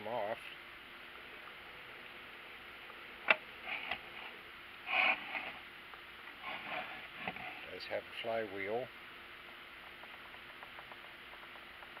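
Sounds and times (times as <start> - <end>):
rustling scrape: 3.6 - 5.6, 6.4 - 7.7.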